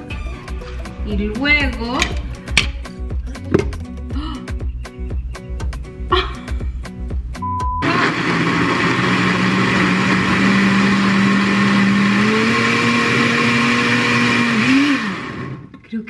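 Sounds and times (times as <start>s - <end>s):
blender whirring: 7.8s - 15.7s.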